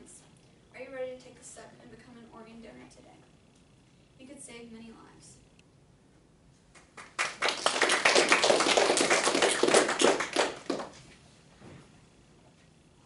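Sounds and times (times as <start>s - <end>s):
people clapping: 6.7s - 11.0s.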